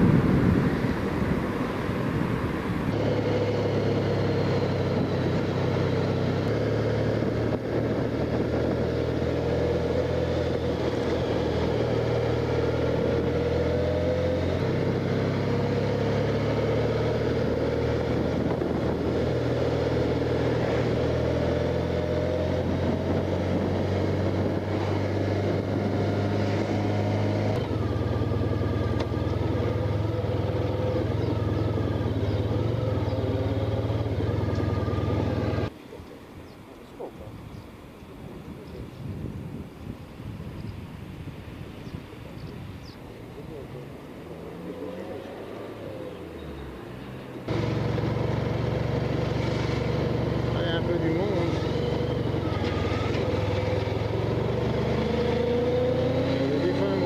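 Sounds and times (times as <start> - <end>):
wind and road noise: 0.0 - 57.0
motorcycle engine running: 3.0 - 35.7, 47.1 - 57.0.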